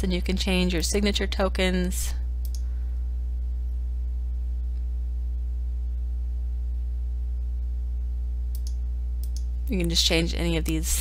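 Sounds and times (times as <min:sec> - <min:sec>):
low electrical hum: 0:00.0 - 0:11.0
faint mouse clicks: 0:08.5 - 0:10.0.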